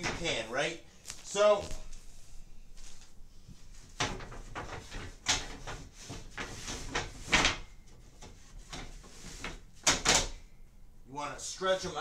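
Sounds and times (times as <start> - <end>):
wooden slats sliding and knocking: 3.6 - 10.4.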